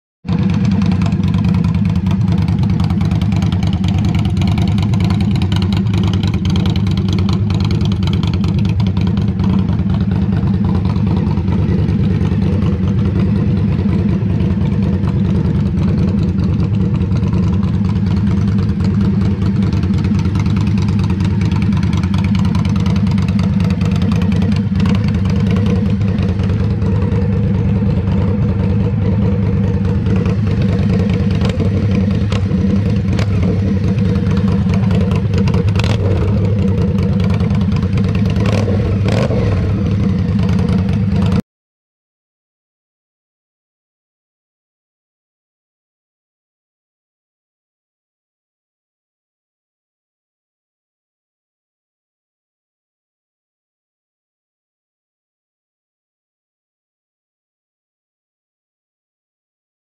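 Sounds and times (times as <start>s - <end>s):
motorcycle engine idling: 0.3s - 41.4s.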